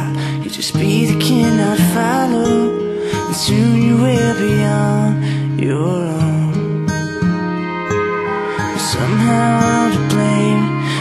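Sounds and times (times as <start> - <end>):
wavering melody over low drone: 7.1 - 11.0.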